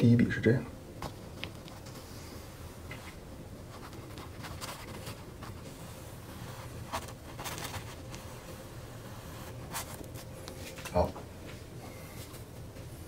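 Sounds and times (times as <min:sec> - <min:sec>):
steady low hum: 0:00.0 - 0:13.0
brush swishing on canvas: 0:01.8 - 0:10.8.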